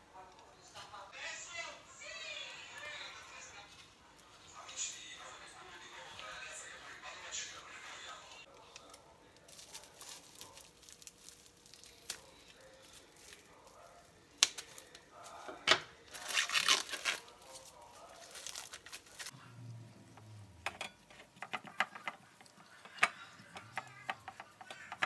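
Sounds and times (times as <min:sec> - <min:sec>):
cling wrap crinkling: 0:08.5 - 0:19.4.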